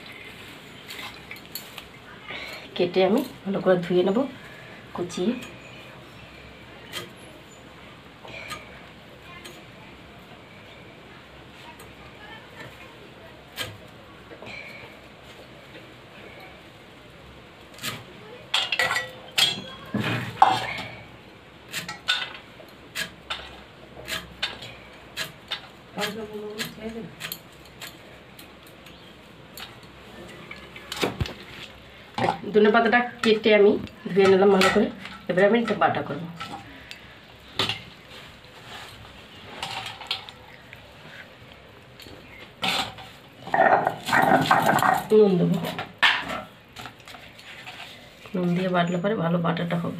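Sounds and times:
leaves rustling by hand: 0:00.0 - 0:07.6, 0:36.7 - 0:45.8
metal bowl clanking on concrete: 0:18.5 - 0:21.1, 0:32.2 - 0:38.0, 0:42.6 - 0:48.0.

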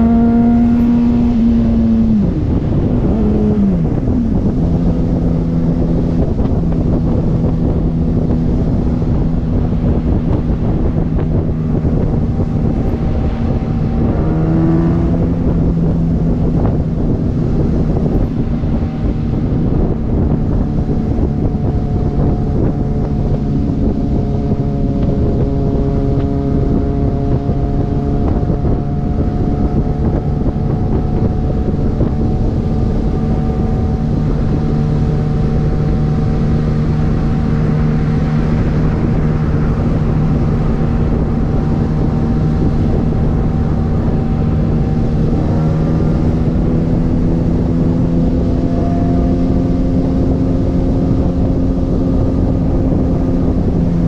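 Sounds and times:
motorcycle engine cruising: 0:00.0 - 0:54.0
wind noise on microphone: 0:00.0 - 0:54.0.

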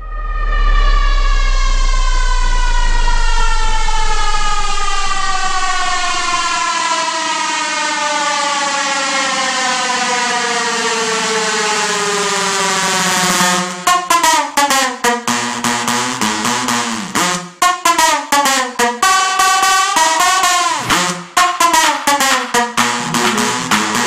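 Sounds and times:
deep bass: 0:00.0 - 0:06.6, 0:22.7 - 0:24.0
synth tone sweeping downward: 0:00.0 - 0:06.7, 0:22.2 - 0:24.0.

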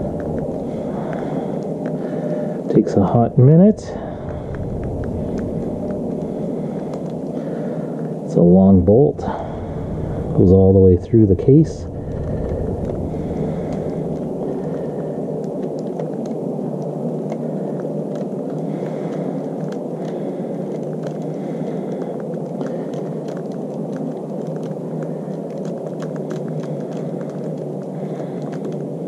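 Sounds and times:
low background noise: 0:00.0 - 0:29.0.

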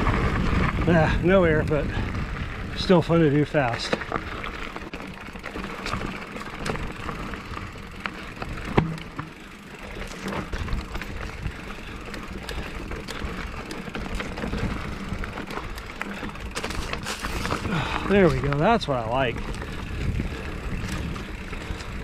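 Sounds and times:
bike rattling clicks and knocks: 0:00.0 - 0:22.0
bike tyres rolling on dirt: 0:00.0 - 0:22.0.

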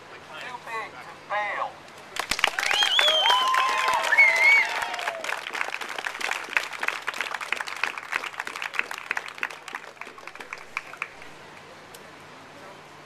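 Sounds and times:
people applauding: 0:02.1 - 0:11.7.

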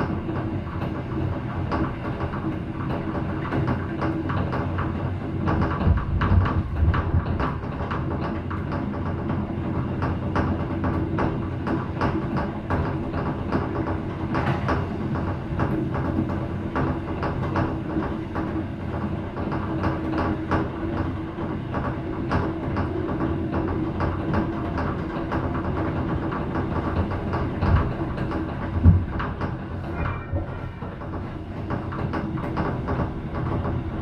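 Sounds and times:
low engine drone: 0:05.2 - 0:09.6, 0:26.2 - 0:34.0.

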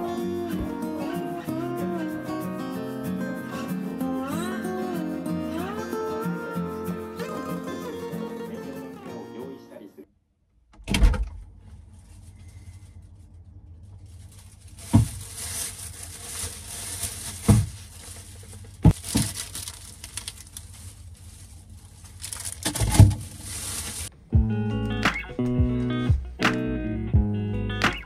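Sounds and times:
plastic bag rustling: 0:11.8 - 0:24.2.

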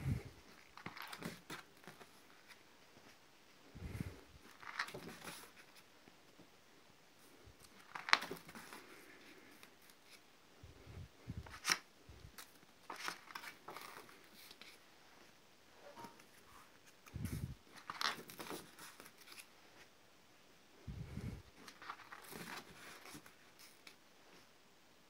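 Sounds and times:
paper pages rustling and flapping: 0:00.5 - 0:03.2, 0:04.4 - 0:05.9, 0:07.6 - 0:10.2, 0:11.4 - 0:14.8, 0:16.8 - 0:19.9, 0:21.6 - 0:24.0.

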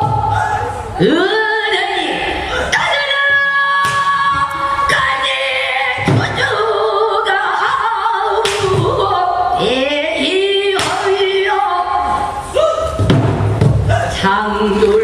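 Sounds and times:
barrel drum strikes: 0:13.0 - 0:13.9.

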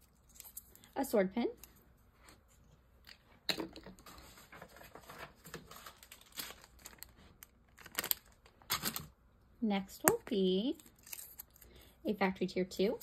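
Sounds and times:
plastic bag crinkling: 0:04.8 - 0:09.1.

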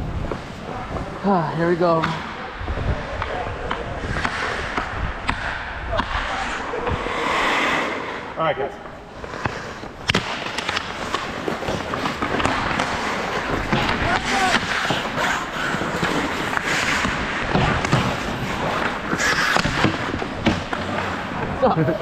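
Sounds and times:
skate blades scraping ice: 0:00.0 - 0:02.2, 0:03.0 - 0:22.0
steady rush of noise: 0:00.0 - 0:22.0
hockey sticks and puck knocking: 0:03.2 - 0:06.4, 0:09.2 - 0:21.6.

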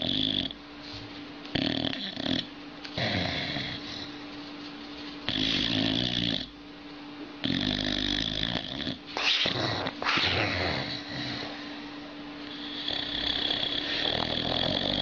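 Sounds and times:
dog snoring: 0:00.0 - 0:00.6, 0:01.5 - 0:04.2, 0:05.2 - 0:06.6, 0:07.4 - 0:11.7, 0:12.4 - 0:15.0.

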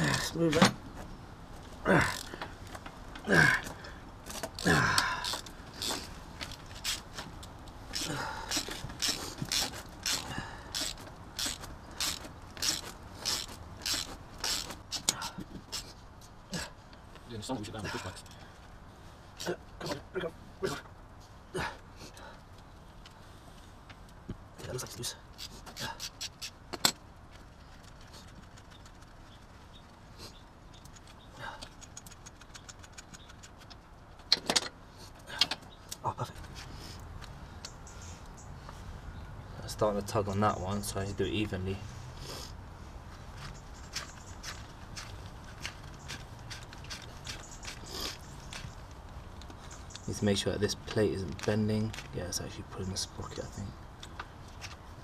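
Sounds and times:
ratchet wrench clicking: 0:07.9 - 0:15.2.

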